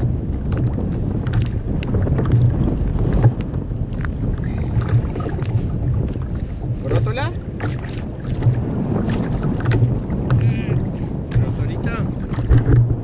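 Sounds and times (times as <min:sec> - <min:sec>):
water sloshing against kayak: 0:00.0 - 0:13.0
wind buffeting microphone: 0:00.0 - 0:13.0.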